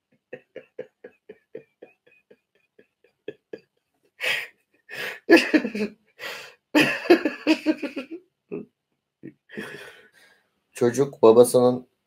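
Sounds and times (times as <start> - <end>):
man laughing hard: 0.4 - 3.6, 4.2 - 8.6, 9.6 - 10.0.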